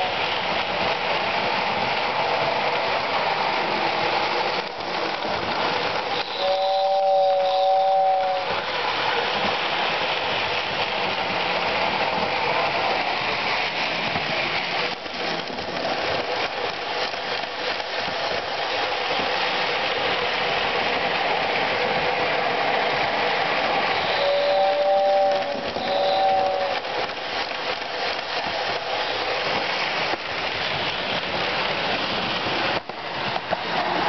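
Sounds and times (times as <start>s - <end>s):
two-note train whistle: 6.2s - 8.5s, 24.0s - 26.9s.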